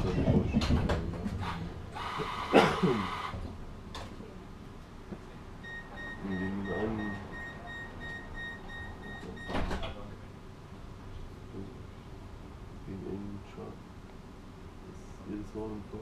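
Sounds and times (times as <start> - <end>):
tram door warning beeps: 5.6 - 9.8.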